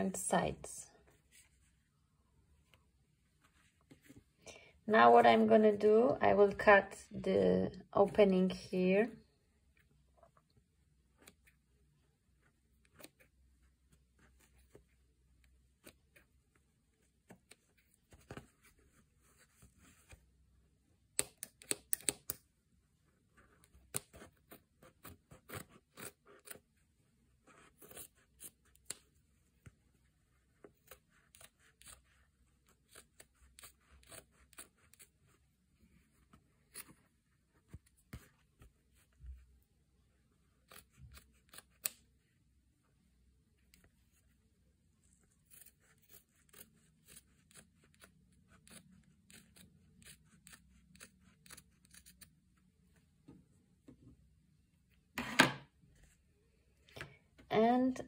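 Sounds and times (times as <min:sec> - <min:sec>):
scissors snipping fabric: 0:21.1 - 0:22.4, 0:23.6 - 0:26.6, 0:30.6 - 0:35.2, 0:40.6 - 0:42.1, 0:45.4 - 0:52.3.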